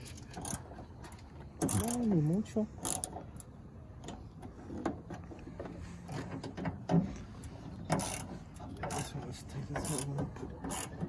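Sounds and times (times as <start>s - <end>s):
ratchet wrench clicking: 1.6s - 2.1s, 7.9s - 9.2s.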